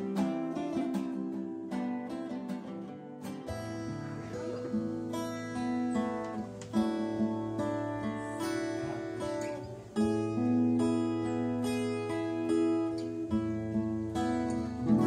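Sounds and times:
acoustic guitars playing: 0:00.0 - 0:15.0.

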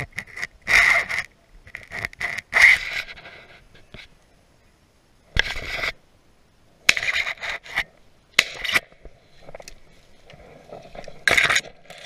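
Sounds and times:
faint rustling: 0:07.0 - 0:12.0.

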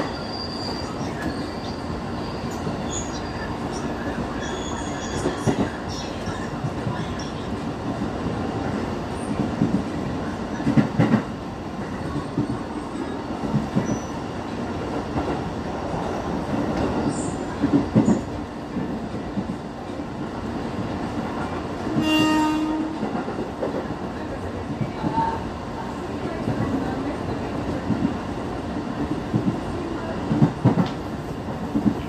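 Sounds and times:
electric train rumbling: 0:00.0 - 0:32.0
train horn: 0:21.9 - 0:23.2.

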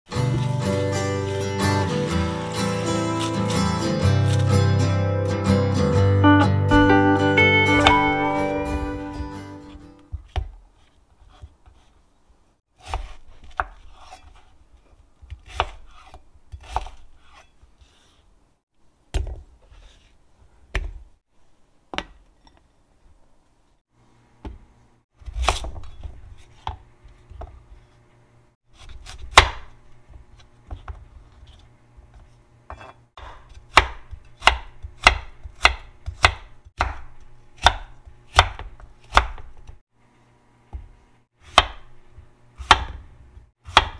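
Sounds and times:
knife chopping on wooden board: 0:12.8 - 0:14.4, 0:15.2 - 0:17.4, 0:28.8 - 0:29.7, 0:32.7 - 0:39.8, 0:40.7 - 0:43.9.

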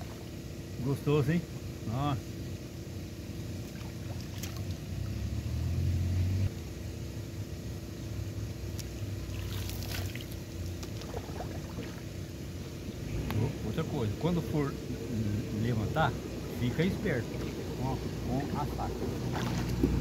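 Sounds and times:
water splashing by hand: 0:03.6 - 0:04.8, 0:08.8 - 0:12.1, 0:18.3 - 0:20.0.

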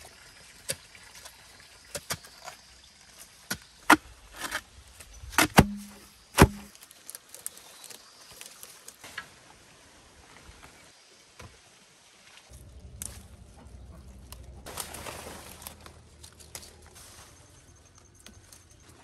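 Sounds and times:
blade chopping bamboo: 0:03.5 - 0:04.6, 0:05.2 - 0:06.8.

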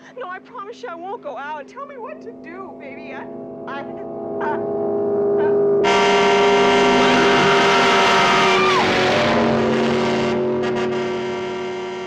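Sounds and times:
car engine: 0:02.2 - 0:12.0
falling squeal-like tone: 0:04.0 - 0:10.3.

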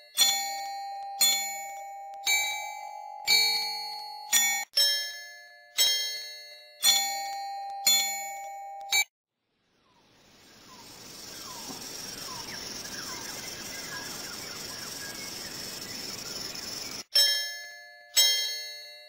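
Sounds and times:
steady hiss: 0:09.6 - 0:17.0.

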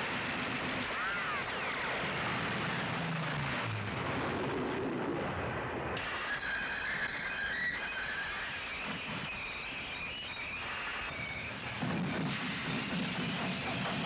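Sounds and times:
steam locomotive running fast: 0:06.0 - 0:14.0
wheels squealing on rails: 0:06.0 - 0:14.0.

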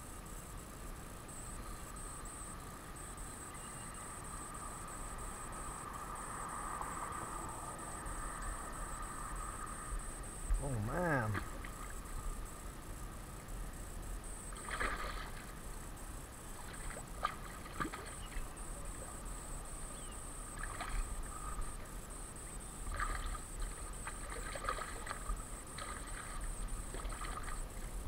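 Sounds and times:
high insect buzz: 0:00.0 - 0:28.0
fish splashing in water: 0:14.5 - 0:15.5, 0:16.6 - 0:19.2, 0:20.5 - 0:21.5, 0:22.8 - 0:27.9.

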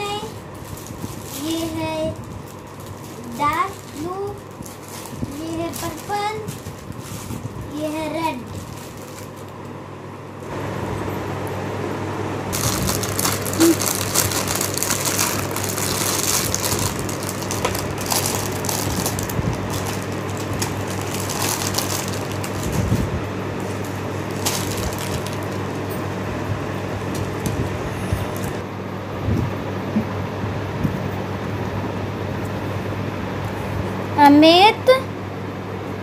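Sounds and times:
plastic bags crinkling: 0:00.0 - 0:09.8, 0:12.5 - 0:26.2, 0:27.0 - 0:28.6
steady low hum: 0:00.0 - 0:36.0.

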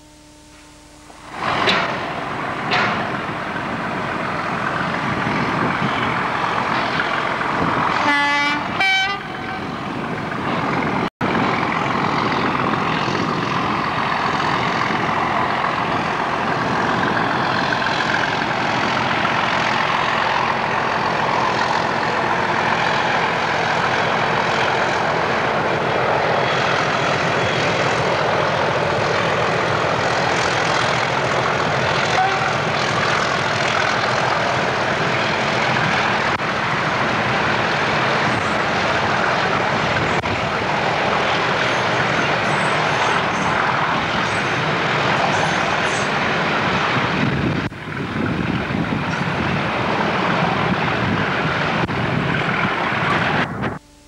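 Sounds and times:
locomotive horn blasts: 0:00.0 - 0:01.6, 0:07.9 - 0:09.8, 0:32.0 - 0:32.8, 0:53.4 - 0:54.0
diesel locomotive running: 0:00.0 - 0:54.0.

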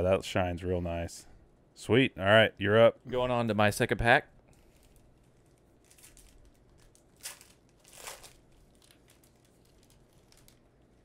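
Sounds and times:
wrapper crinkles: 0:04.5 - 0:11.0
wrapper rustling: 0:04.5 - 0:11.0.

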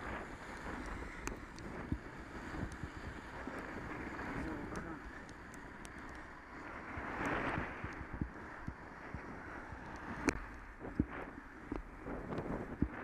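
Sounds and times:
tyres hissing on wet road: 0:00.0 - 0:12.1
wind buffeting microphone: 0:00.0 - 0:13.0
sharp ticks: 0:00.1 - 0:03.7, 0:04.4 - 0:06.3.

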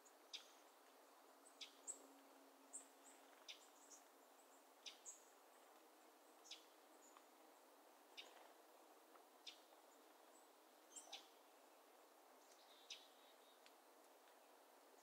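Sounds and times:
soft steady hiss: 0:00.0 - 0:15.0
thin high bird calls: 0:08.1 - 0:08.5, 0:12.4 - 0:13.6.

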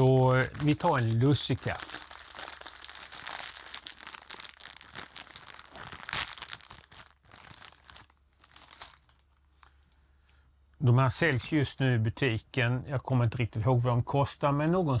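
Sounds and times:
plastic bag crinkling: 0:00.0 - 0:09.7.

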